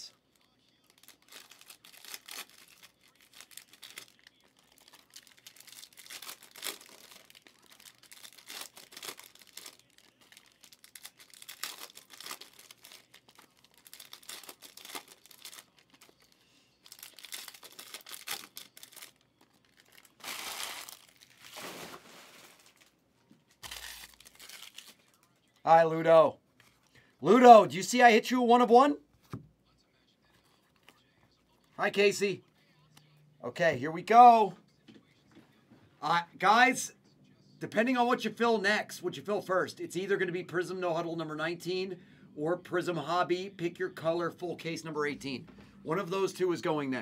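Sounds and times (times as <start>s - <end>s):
foil wrappers crinkling and tearing: 0.3s - 23.0s, 23.6s - 25.3s.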